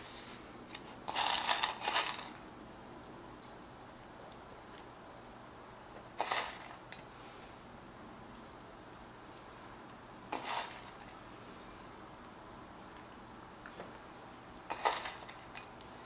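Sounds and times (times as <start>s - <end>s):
seeds rattling in container: 0.7s - 2.4s, 6.2s - 6.8s, 10.3s - 11.2s, 14.7s - 15.7s.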